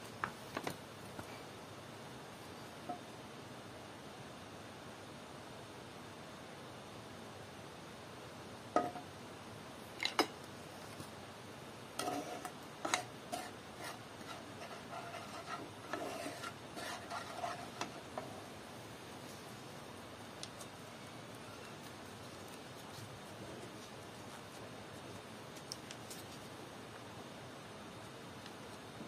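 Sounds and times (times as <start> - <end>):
wooden spatula scraping pan: 12.0 - 18.4.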